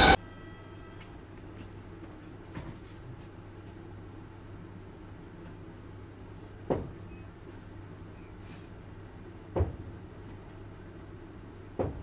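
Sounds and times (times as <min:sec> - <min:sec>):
sharp knocks of train carriage: 0:09.5 - 0:09.8, 0:11.8 - 0:12.0.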